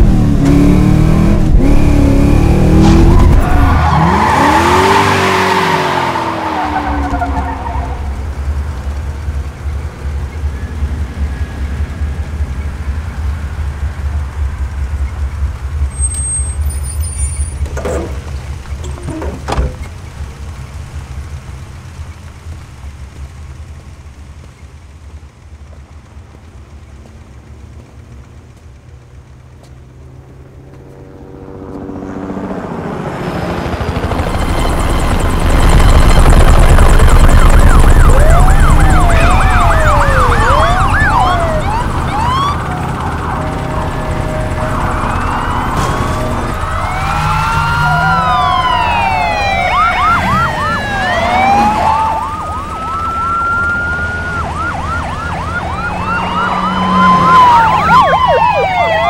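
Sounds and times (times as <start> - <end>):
police sirens wailing: 0.0 - 15.5, 32.5 - 59.0.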